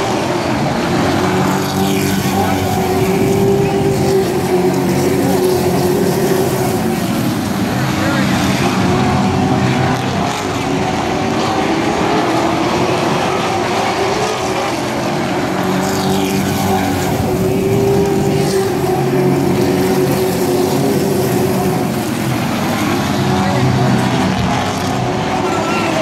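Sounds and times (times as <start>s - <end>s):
racing truck engines: 0.0s - 26.0s.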